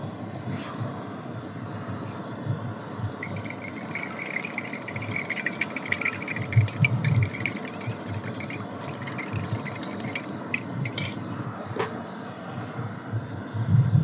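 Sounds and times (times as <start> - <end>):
fork whisking egg in metal bowl: 3.2 - 11.2.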